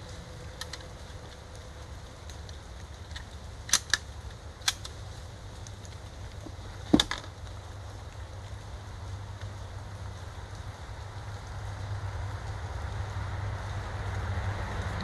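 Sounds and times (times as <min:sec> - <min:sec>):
rifle bolt action clicks: 0:03.7 - 0:04.0.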